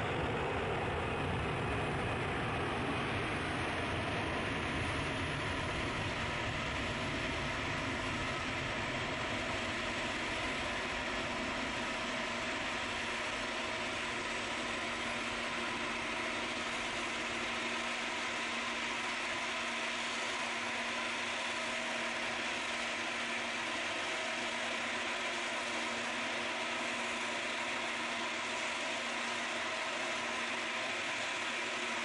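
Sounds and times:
jet engines of taxiing airliners: 0.0 - 32.0.

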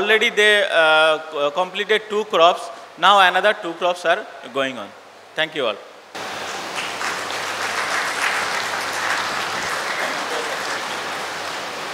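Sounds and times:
audience applauding: 6.2 - 11.7.

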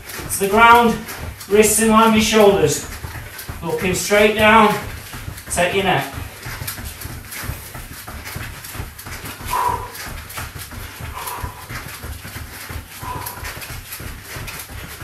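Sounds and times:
thuds of feet and hands on floor: 0.0 - 15.0
people breathing hard: 6.2 - 15.0.

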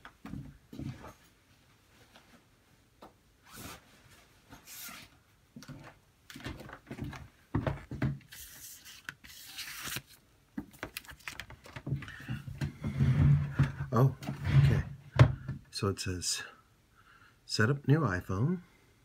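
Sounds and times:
plastic and cardboard packaging rustling: 5.7 - 13.8
knocks and thumps: 11.8 - 15.7.

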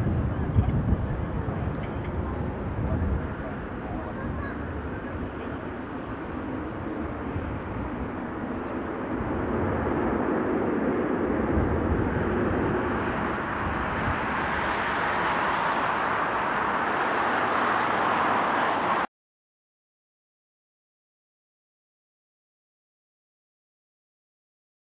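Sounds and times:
jet exhaust rush: 0.0 - 19.0
jet engines running: 0.0 - 19.1.

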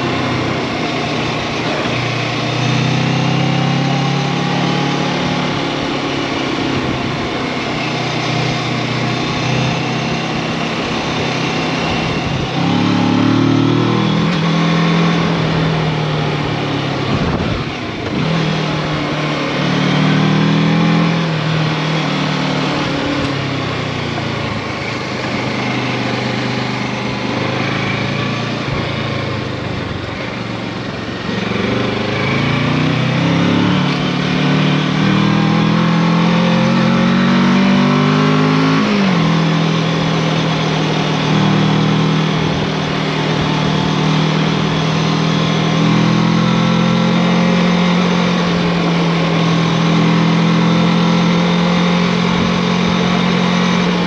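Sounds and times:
tyres on gravel road: 0.0 - 2.8
motorcycle engine revving: 0.0 - 54.0.

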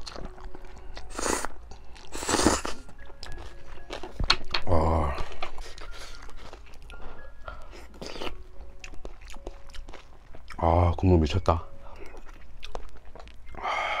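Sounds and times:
wet chewing clicks: 0.0 - 10.7, 11.9 - 13.6
person slurping noodles: 1.0 - 1.5, 2.1 - 2.8.

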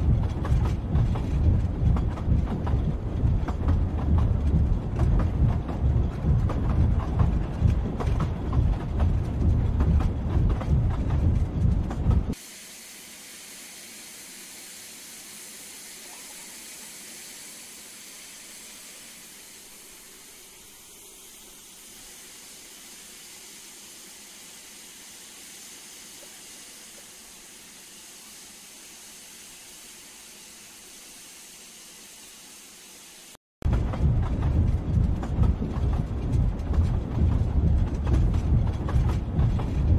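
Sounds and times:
train rumbling over rails: 0.0 - 12.6, 13.2 - 30.9, 33.6 - 39.9
steam hissing: 12.3 - 33.4.

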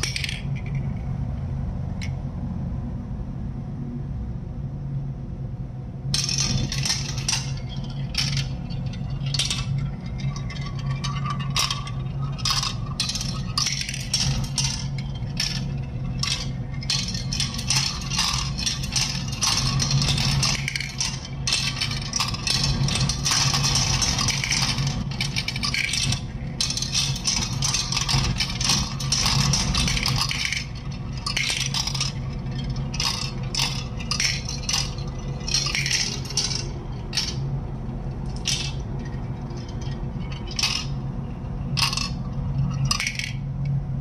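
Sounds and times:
marbles clattering into plastic bin: 0.0 - 0.8, 6.2 - 37.4, 38.3 - 38.9, 40.4 - 41.0, 41.8 - 42.2
marbles rolling on plastic track: 0.0 - 1.0, 6.2 - 37.4, 38.1 - 43.4.

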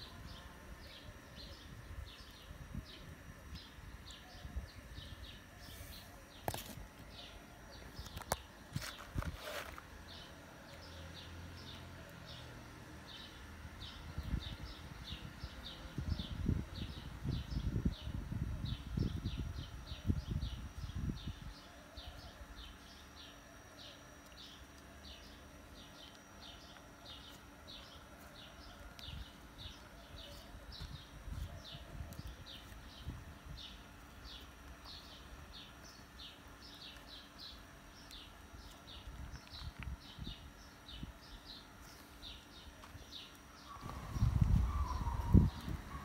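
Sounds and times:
bird chirping: 18.8 - 46.0.

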